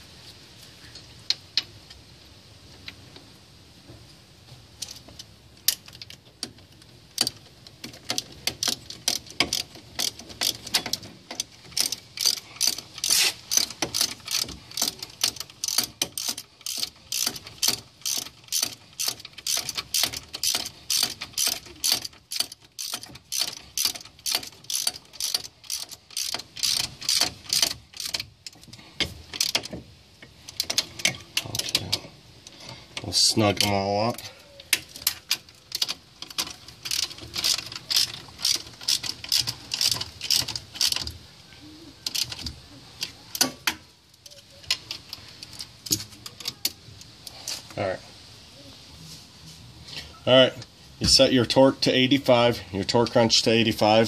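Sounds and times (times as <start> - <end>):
ratchet wrench clicking: 5.7 - 29.8, 34.7 - 41.2, 42.0 - 46.6.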